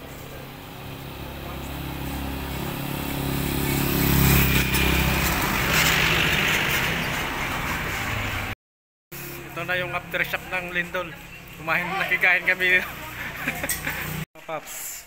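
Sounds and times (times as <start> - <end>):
car passing with tyre noise: 0.0 - 8.6
pickup truck engine passing: 0.6 - 8.6.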